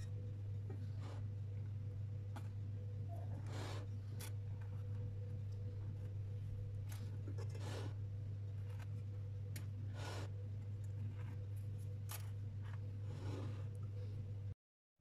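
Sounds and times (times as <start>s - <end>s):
steady low hum: 0.0s - 14.6s.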